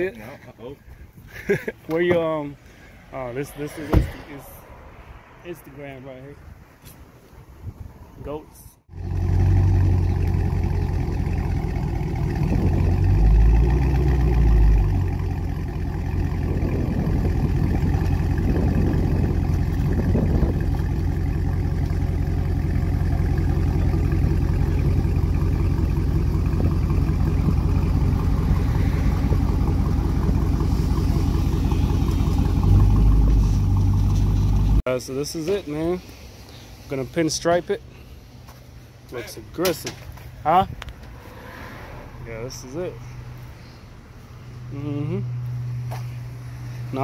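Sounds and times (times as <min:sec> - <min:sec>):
car engine idling: 0:08.9 - 0:34.8.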